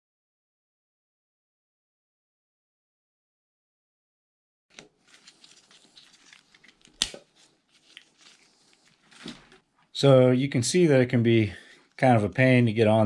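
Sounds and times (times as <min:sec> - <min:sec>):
gloved hands rubbing and rustling: 0:04.7 - 0:09.9.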